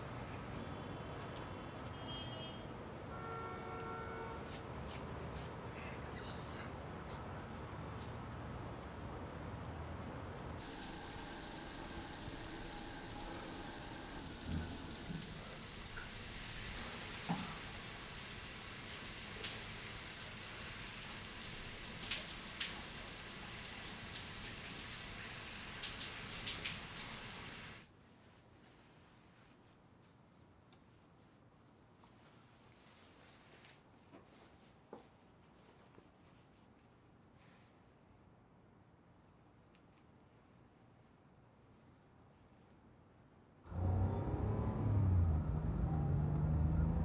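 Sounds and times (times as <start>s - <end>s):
shower water spraying: 10.6s - 27.9s.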